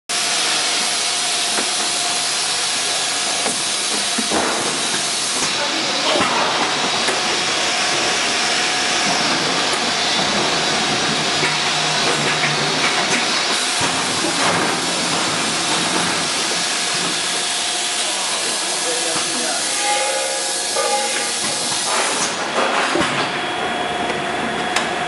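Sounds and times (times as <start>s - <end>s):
pneumatic machine hissing: 8.2s - 22.5s.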